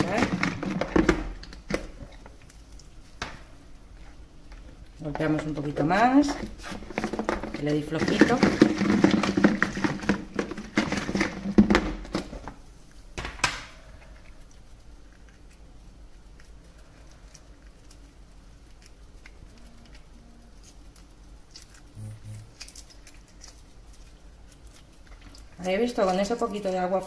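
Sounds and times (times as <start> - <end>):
eggs rattling in plastic tub: 0.0 - 2.3, 5.0 - 12.6
eggshell peeling ticks: 13.9 - 26.7.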